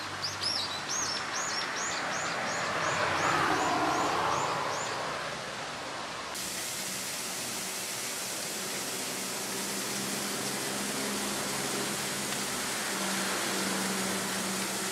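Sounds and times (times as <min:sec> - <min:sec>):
steady outdoor noise: 0:00.0 - 0:14.9.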